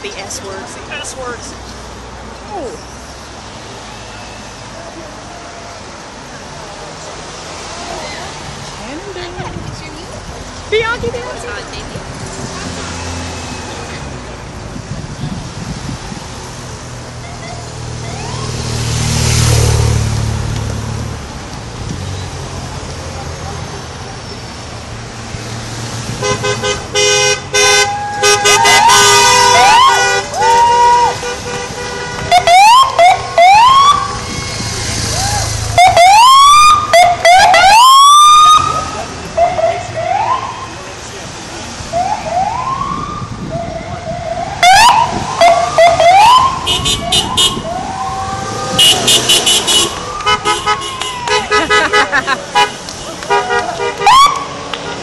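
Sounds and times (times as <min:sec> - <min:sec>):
vehicle horns honking: 0:26.2 - 0:32.8, 0:46.6 - 0:47.7, 0:48.6 - 0:55.0
electronic siren whooping: 0:32.4 - 0:38.8, 0:42.0 - 0:51.5
short rapid horn blasts: 0:46.6 - 0:47.6, 0:48.7 - 0:52.0.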